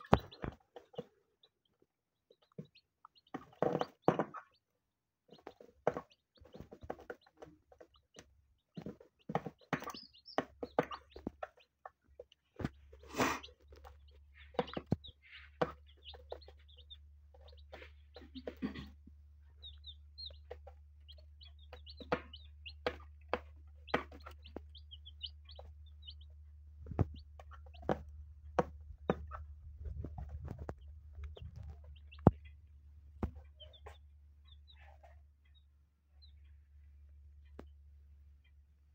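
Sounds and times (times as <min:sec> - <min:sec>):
chicks peeping softly: 0:00.0 - 0:38.9
beaks tapping on plastic: 0:05.3 - 0:18.9.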